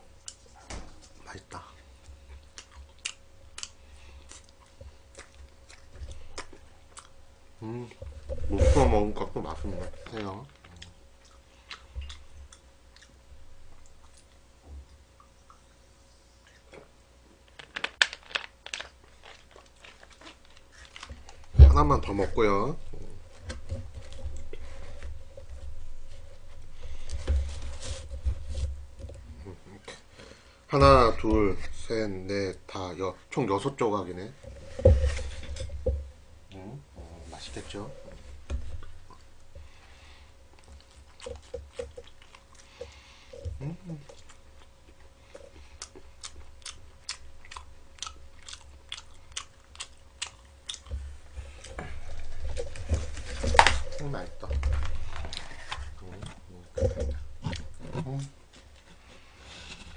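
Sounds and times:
faint steady hum: 0.0 - 59.9
person chewing crunchy pizza: 2.2 - 14.4, 17.9 - 21.5, 38.8 - 54.3
cardboard rustling: 51.5 - 59.9.

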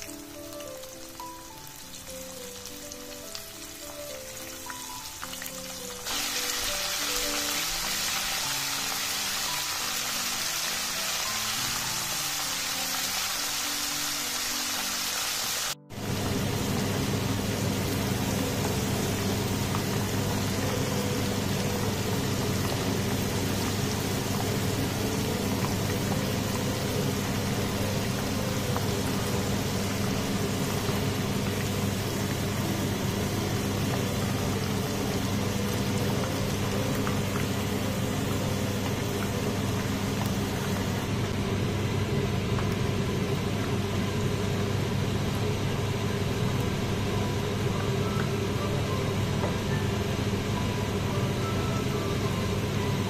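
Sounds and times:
meat sizzling in hot oil: 0.0 - 41.1.

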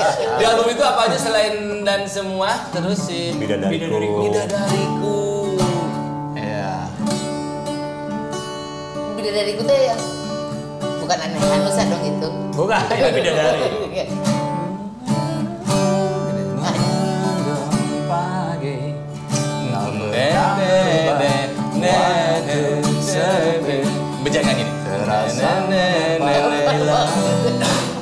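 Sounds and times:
man singing: 0.0 - 7.0, 12.9 - 28.0
acoustic guitar: 0.0 - 28.0.

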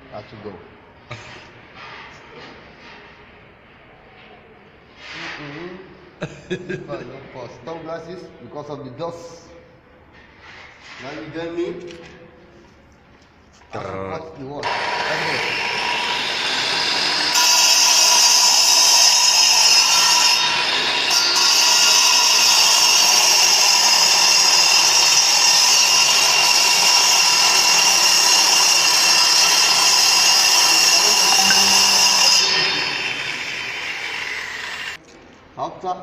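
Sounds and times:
angle grinder cutting concrete: 14.6 - 35.0
grinder winding down whine: 14.6 - 35.0.

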